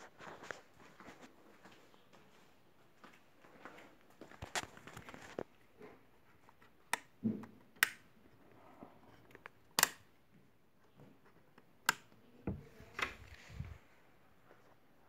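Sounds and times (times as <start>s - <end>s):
wall switches clicking: 6.9s - 7.2s, 7.8s - 8.1s, 9.7s - 10.2s, 11.8s - 13.3s.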